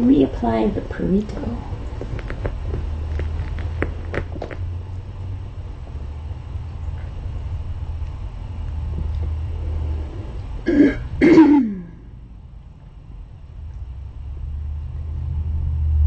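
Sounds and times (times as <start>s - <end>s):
steady low hum: 0.0s - 16.0s
person clearing throat: 10.7s - 12.0s.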